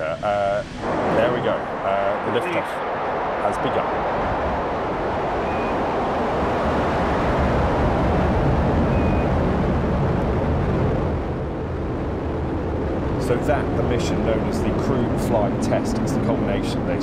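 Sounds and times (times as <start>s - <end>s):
rocket launch deep rumble: 0.0s - 17.0s.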